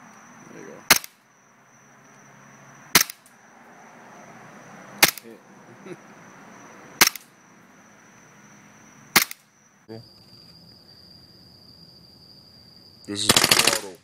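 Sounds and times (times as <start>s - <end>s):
airsoft pistol shots: 0.9s - 1.2s, 2.9s - 3.2s, 5.0s - 5.2s, 7.0s - 7.3s, 9.1s - 9.4s, 13.2s - 14.0s.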